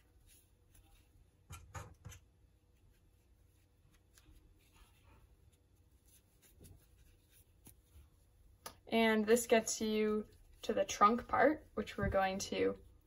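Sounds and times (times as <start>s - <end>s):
crochet hook working yarn: 0.0s - 8.2s.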